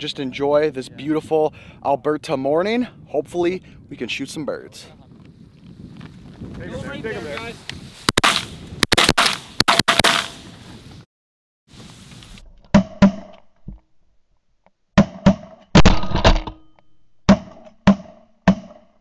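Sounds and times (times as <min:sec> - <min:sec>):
shotgun blasts: 0:08.1 - 0:10.5.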